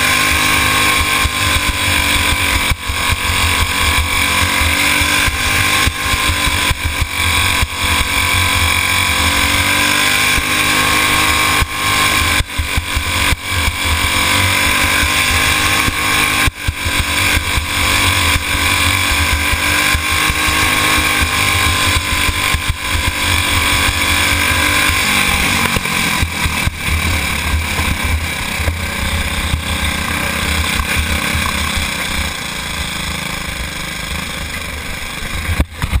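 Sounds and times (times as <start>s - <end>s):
go-kart engine at high revs: 0.0s - 36.0s
heavy low rumble: 22.1s - 33.7s.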